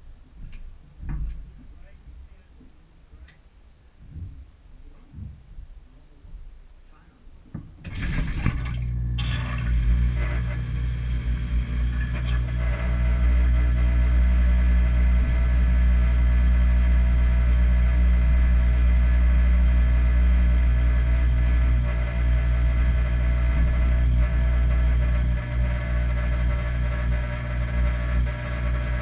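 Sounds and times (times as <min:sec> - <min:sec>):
dishwasher pump humming: 0:07.8 - 0:29.0.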